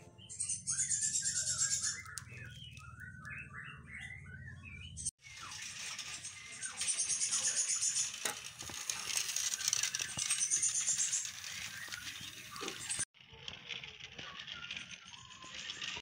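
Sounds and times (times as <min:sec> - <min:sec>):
toy train wheels clicking rattle: 0:05.2 - 0:16.0.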